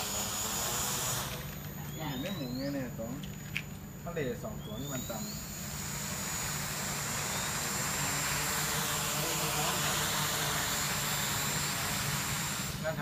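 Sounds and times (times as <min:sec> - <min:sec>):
quadcopter propellers buzzing: 0:00.0 - 0:13.0.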